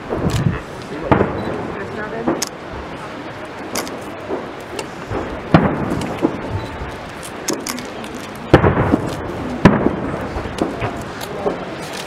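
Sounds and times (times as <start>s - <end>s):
firework shells bursting: 3.6s - 12.0s.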